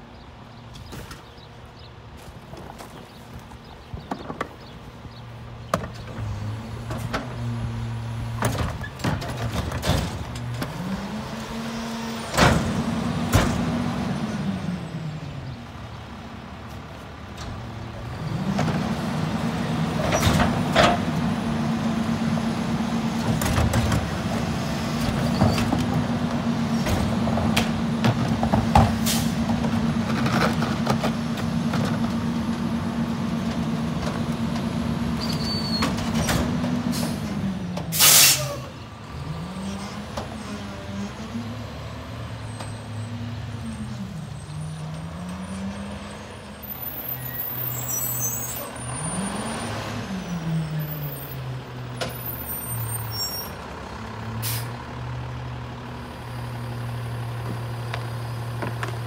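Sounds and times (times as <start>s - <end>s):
garbage truck engine: 0.4s - 59.0s
air brakes hissing: 37.9s - 38.8s, 54.4s - 54.8s.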